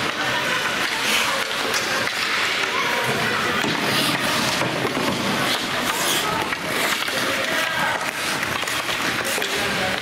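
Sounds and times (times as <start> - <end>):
spectators chattering: 0.0 - 10.0.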